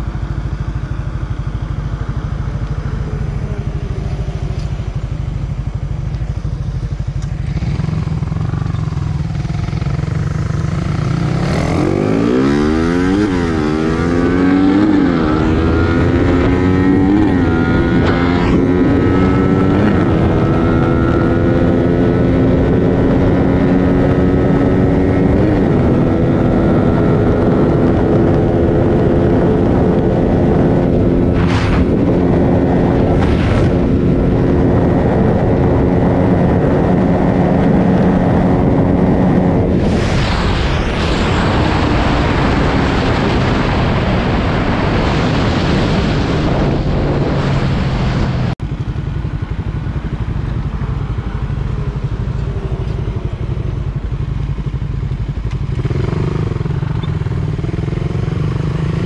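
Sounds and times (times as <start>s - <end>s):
motorcycle engines idling: 0.0s - 11.1s, 48.6s - 55.9s, 56.6s - 58.8s
high-revving motorcycle engine: 0.0s - 59.0s
wind rush: 1.7s - 59.0s.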